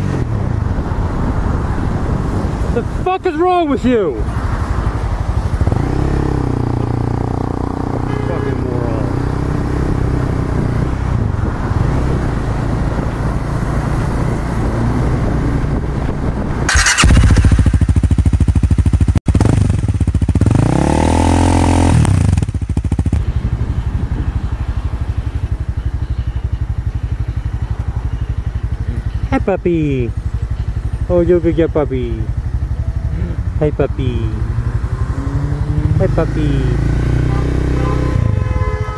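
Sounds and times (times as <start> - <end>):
wind noise: 0.0 - 6.8, 9.5 - 18.7, 21.9 - 28.0
motorcycle engine running: 4.2 - 38.9
louder motorcycle engine revving: 5.4 - 10.9, 16.6 - 23.4, 31.9 - 38.9.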